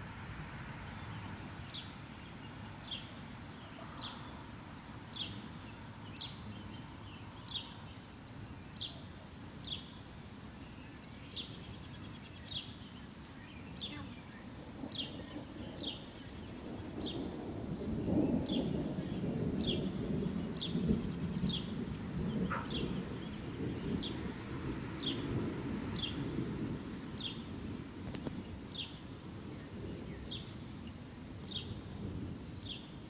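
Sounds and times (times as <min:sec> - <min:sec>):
bird chirping: 0:05.1 - 0:17.3, 0:17.9 - 0:25.4.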